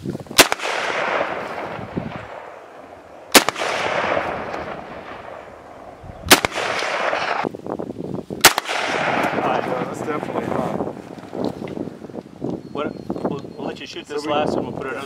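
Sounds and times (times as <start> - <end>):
rifle shots with echo: 0.4 - 7.5, 8.4 - 10.6.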